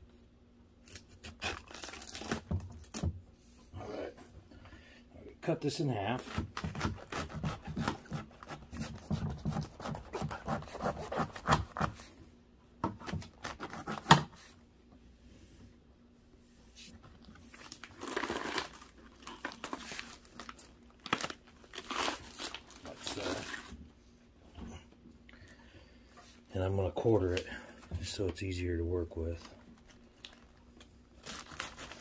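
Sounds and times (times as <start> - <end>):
knife cutting cabbage: 6.2 - 12.1, 12.9 - 14.3.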